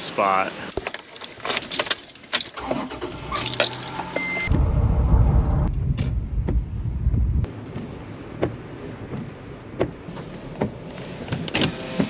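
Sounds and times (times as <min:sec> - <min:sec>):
truck driving rumble: 0:04.4 - 0:10.6.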